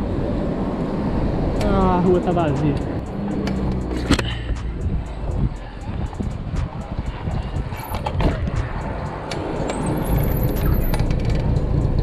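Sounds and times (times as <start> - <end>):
road noise: 0.0 - 12.0
wind rumble: 0.0 - 12.0
bike rattling clicks: 2.7 - 12.0
high squeal: 9.6 - 11.2.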